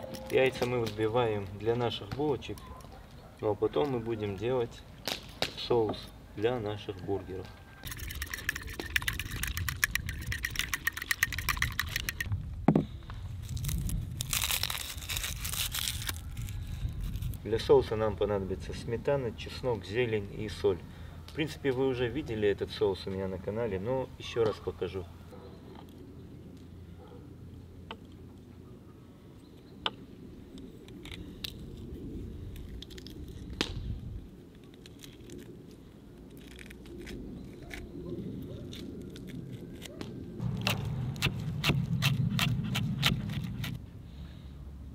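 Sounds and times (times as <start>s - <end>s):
fork beating eggs in a bowl: 7.9s - 12.3s
garlic skin crinkling rustle: 13.4s - 17.8s, 34.4s - 43.8s.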